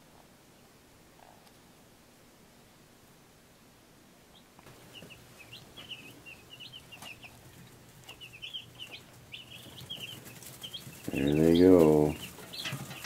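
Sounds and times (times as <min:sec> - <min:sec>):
faint low hum: 0:00.0 - 0:13.0
chicks peeping: 0:04.3 - 0:13.0.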